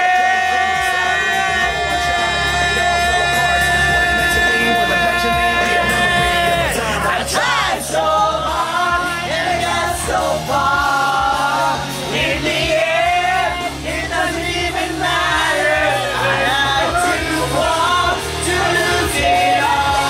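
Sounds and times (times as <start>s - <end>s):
people shouting and whooping: 0.0s - 8.5s, 15.0s - 20.0s
song with singing and bass: 0.0s - 20.0s.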